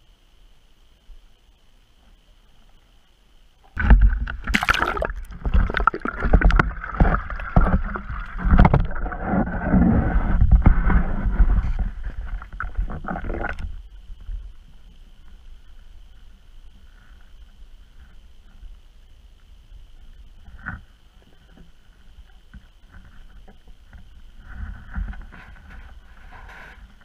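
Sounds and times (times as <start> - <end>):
water sloshing: 3.7 - 9.7.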